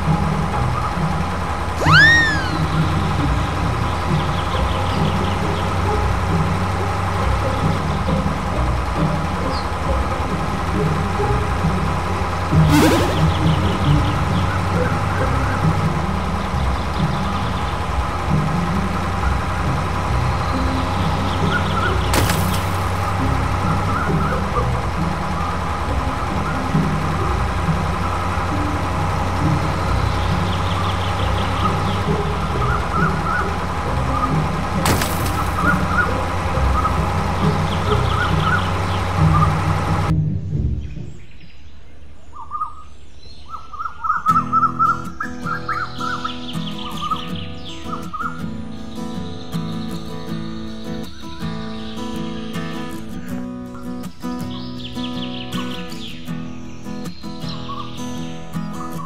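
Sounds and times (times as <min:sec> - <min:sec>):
toy engine idling rumble: 0:00.0 - 0:40.1
quick high chirps: 0:01.8 - 0:03.0, 0:12.7 - 0:13.7.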